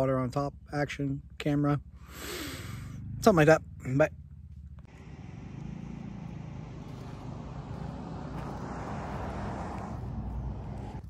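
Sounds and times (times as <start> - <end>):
vehicle passing rumble: 2.6 - 11.0.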